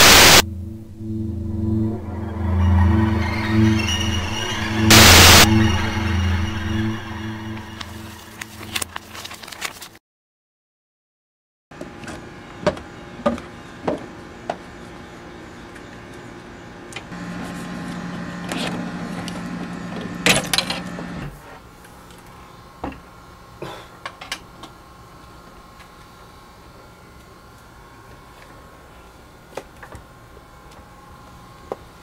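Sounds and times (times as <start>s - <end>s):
steady hum: 0.0s - 9.0s.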